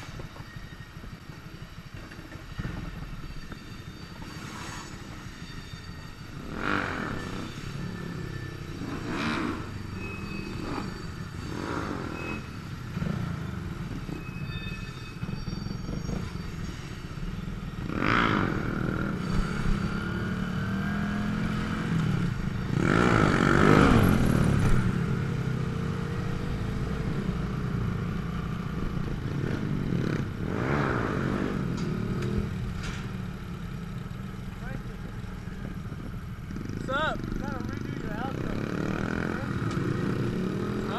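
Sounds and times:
motorcycle engine revving: 6.2 - 14.5, 17.4 - 40.9.

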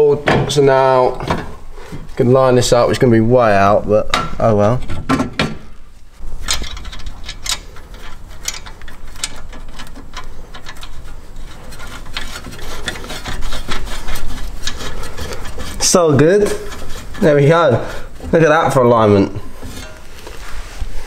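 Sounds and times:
metal clicks and scraping: 6.2 - 17.4, 19.4 - 20.5.

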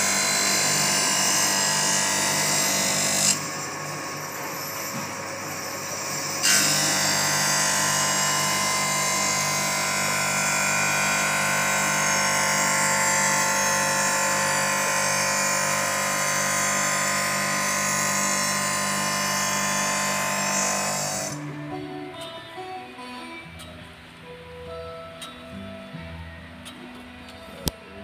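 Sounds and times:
grinding wheel on steel blade: 0.0 - 21.4
grinder motor humming: 0.0 - 22.3.

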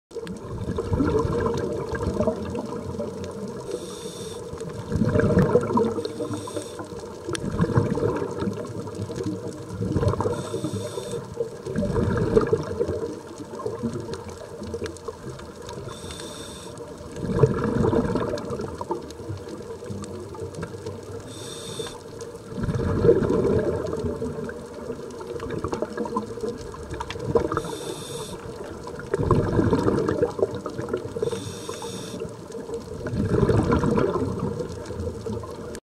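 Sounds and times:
bubbling exhaled air underwater: 0.1 - 35.8
regulator inhale hiss: 3.7 - 4.5, 5.9 - 7.0, 10.2 - 11.3, 15.9 - 16.8, 21.2 - 22.0, 27.6 - 28.4, 31.2 - 32.3.

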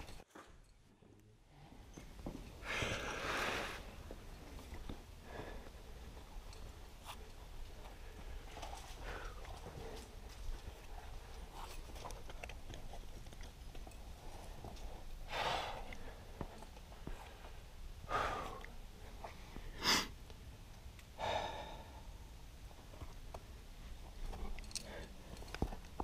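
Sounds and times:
person breathing hard: 15.3 - 20.2, 21.2 - 22.2.

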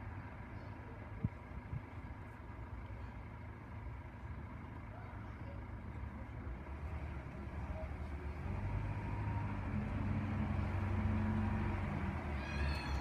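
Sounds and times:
traffic rumble: 0.0 - 13.0.

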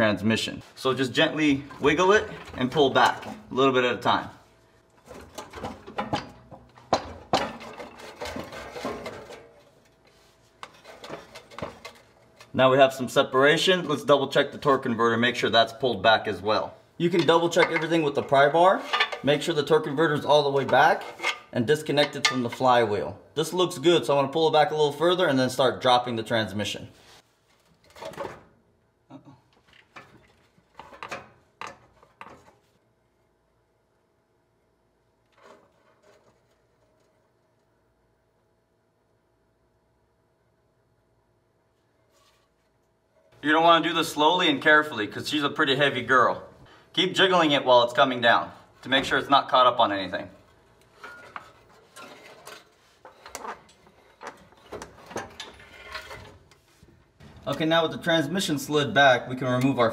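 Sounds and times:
metal clunking and scraping: 1.4 - 4.3, 5.0 - 12.5, 17.0 - 22.9, 29.7 - 32.8, 50.5 - 58.6
light metal clunks and knocks: 5.0 - 9.7
metal clattering: 5.0 - 9.9, 17.1 - 19.5.

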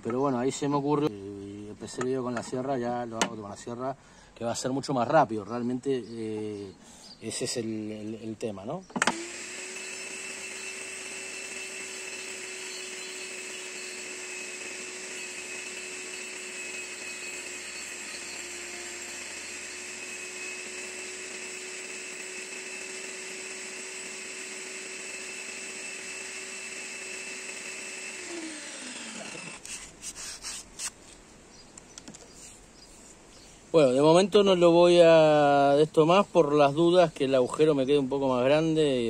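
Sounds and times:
saw winding down whine: 9.0 - 29.9
table saw running: 9.0 - 29.9
saw blade shaving wood: 9.0 - 31.0.

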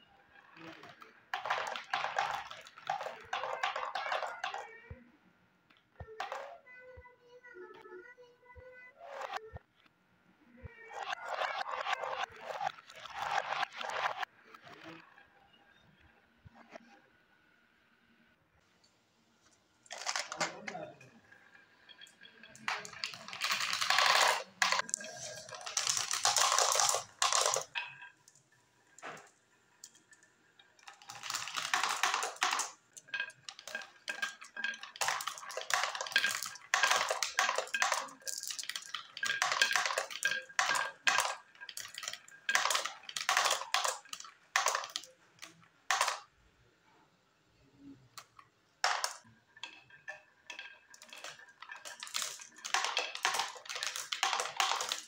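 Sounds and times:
marbles rolling on wooden track: 0.3 - 5.0, 5.7 - 6.6, 10.6 - 15.1, 19.8 - 46.3, 47.9 - 55.0
marbles clinking into plastic truck: 0.5 - 4.7, 11.0 - 14.3, 19.9 - 28.4, 29.0 - 46.3, 48.2 - 55.0
marbles rattling in plastic funnel: 0.6 - 4.6, 11.0 - 14.3, 19.9 - 20.9, 21.9 - 28.4, 30.8 - 46.3, 48.8 - 55.0.

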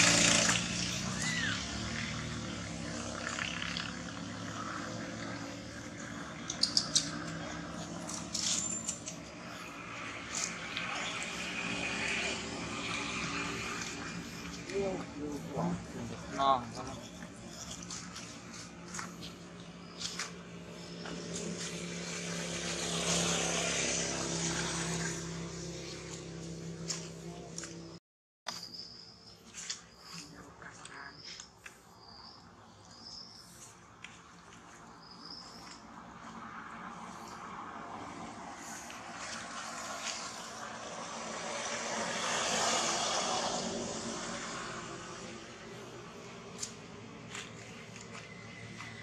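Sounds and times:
low engine-like drone: 0.0 - 28.0.

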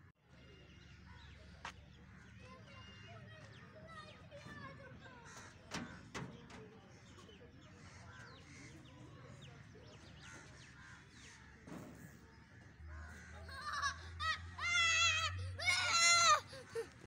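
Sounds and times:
child's voice: 2.4 - 5.3, 13.5 - 17.0
crows cawing: 5.2 - 6.0.

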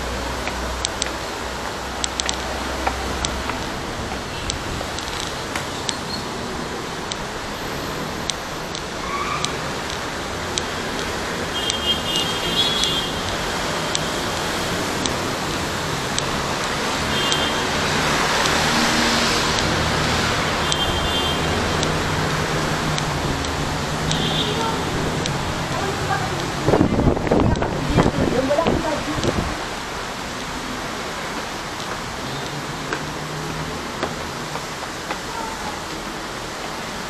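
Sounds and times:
city road traffic: 0.0 - 37.0
light footsteps: 0.3 - 6.0, 31.0 - 35.8
vehicle passing: 13.2 - 35.0.

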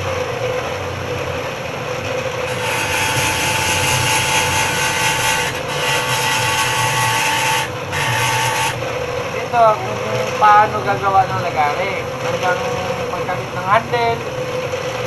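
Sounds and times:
bench grinder running: 0.0 - 15.0
metal grinding on wheel: 2.1 - 9.3.

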